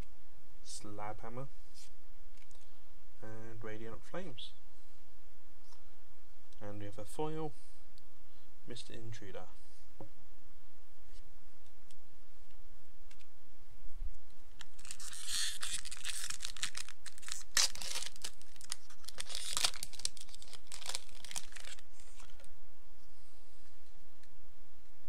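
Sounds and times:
foil wrapper tearing and crinkling: 14.6 - 22.5.

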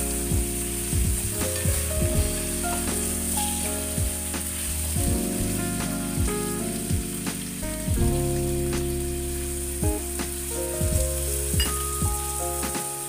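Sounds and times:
chicken sizzling in a pan: 0.0 - 5.6
background music with beat: 0.0 - 13.0.

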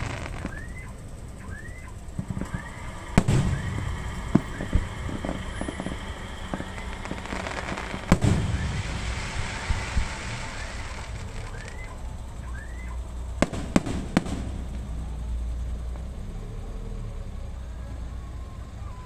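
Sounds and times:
small firework pops: 0.0 - 15.0
loud firework shell bursts: 0.0 - 16.1.

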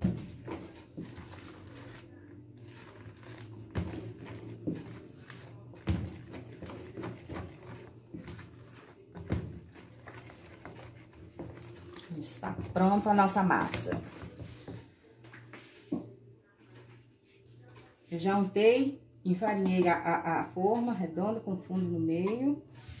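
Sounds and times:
spoon beating cake batter: 0.0 - 14.9.

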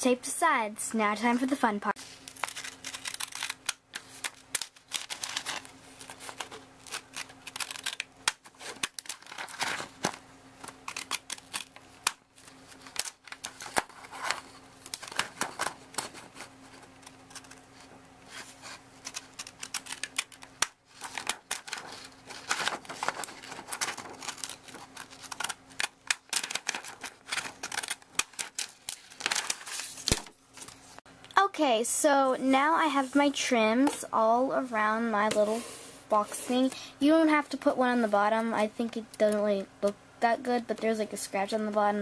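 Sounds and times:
scissors snipping paper: 2.3 - 12.2, 18.6 - 30.2.

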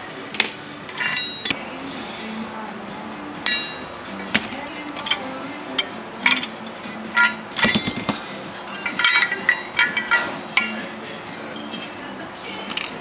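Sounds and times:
steel parts clinking: 0.9 - 1.6, 3.5 - 13.0.

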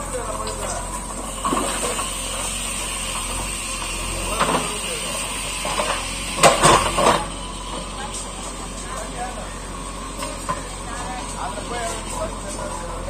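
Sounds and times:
clatter of rocks and soil: 0.0 - 2.6
diesel engine running under load: 0.0 - 13.0.

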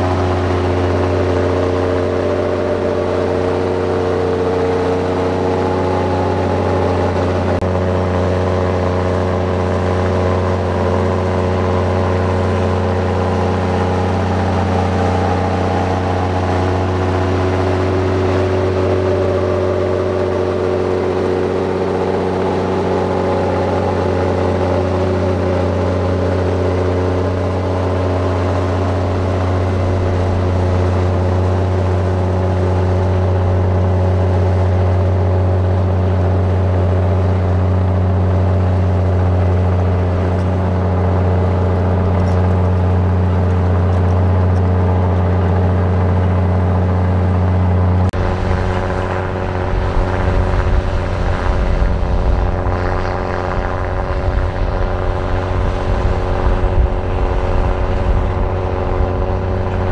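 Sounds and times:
heavy diesel engine droning: 0.0 - 59.9.

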